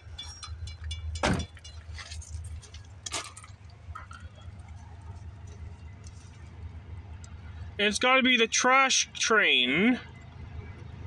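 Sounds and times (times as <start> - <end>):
steady low rumble: 0.0 - 11.0
loud thump: 1.2 - 1.5.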